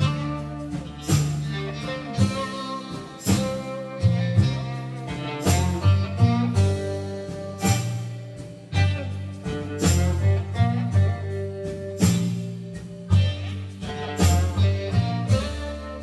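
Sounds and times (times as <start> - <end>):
plucked-string instrumental music: 0.0 - 16.0.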